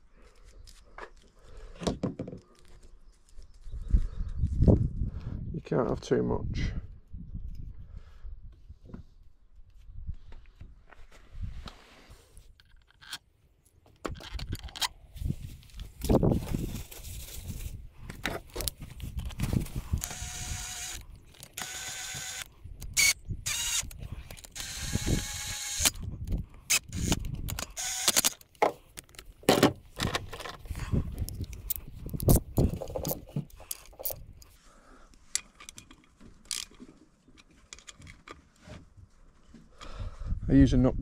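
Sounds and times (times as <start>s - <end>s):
cordless nut gun whirring: 19.9s - 28.4s.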